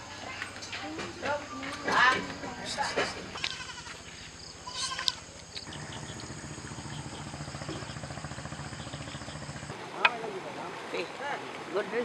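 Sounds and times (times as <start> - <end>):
young animal crying: 3.4 - 4.0, 4.6 - 5.3
fast-pulsing low drone: 5.7 - 9.8.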